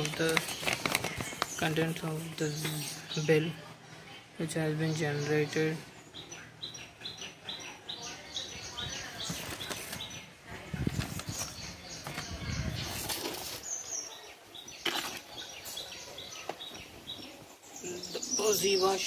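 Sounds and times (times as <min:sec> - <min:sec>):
paper rustling: 0:00.0 - 0:03.0, 0:09.2 - 0:13.7
bird chirping: 0:00.0 - 0:19.0.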